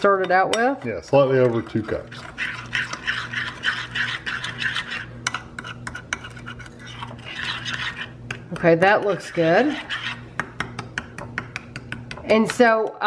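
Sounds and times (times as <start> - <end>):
low steady hum: 0.0 - 13.0
metal spoon scraping glass bowl: 0.2 - 10.4.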